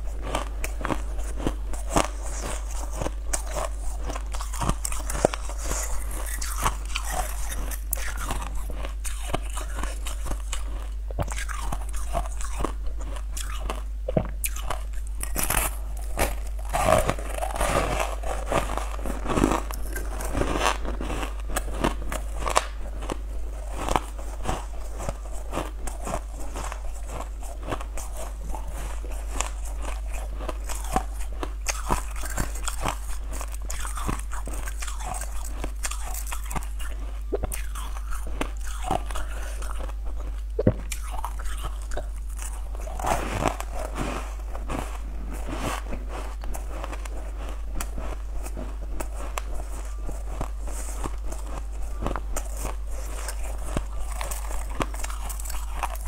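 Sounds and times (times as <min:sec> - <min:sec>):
steady low hum: 0:00.0 - 0:56.0
ice cubes crunched by teeth: 0:14.4 - 0:23.2, 0:50.3 - 0:56.0.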